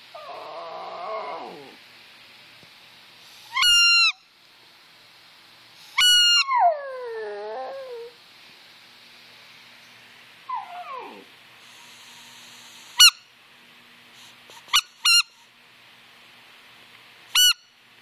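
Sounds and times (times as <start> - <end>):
dog howling: 0.1 - 1.8, 6.0 - 8.2, 10.5 - 11.3
squeaky toy squeaking: 14.7 - 15.4, 17.4 - 17.6.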